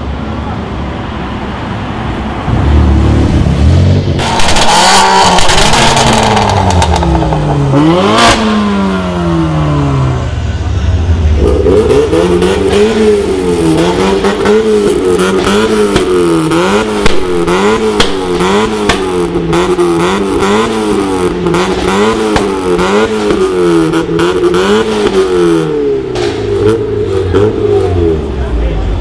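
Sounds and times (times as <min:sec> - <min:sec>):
car engine revving: 0:02.1 - 0:29.0
sharp exhaust cracks: 0:04.1 - 0:08.8.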